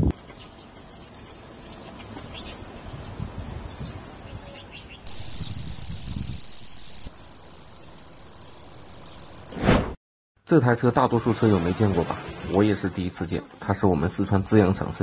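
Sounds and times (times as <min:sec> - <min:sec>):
insects chirring: 0:05.1 - 0:09.6
faint thin high tone: 0:05.1 - 0:09.7.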